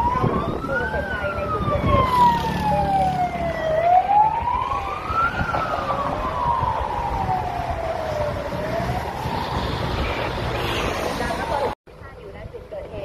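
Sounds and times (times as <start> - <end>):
emergency vehicle siren wailing: 0.0 - 11.8
low rumble of road traffic: 0.0 - 13.0.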